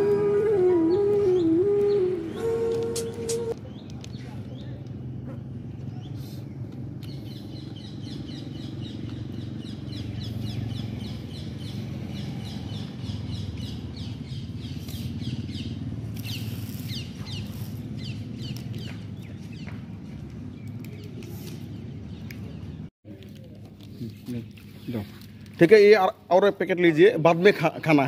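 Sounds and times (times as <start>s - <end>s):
small birds chirping: 3.2s - 25.7s.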